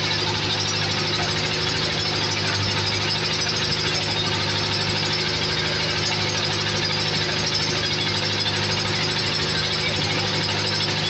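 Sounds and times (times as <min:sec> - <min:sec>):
large engine humming: 0:00.0 - 0:11.0.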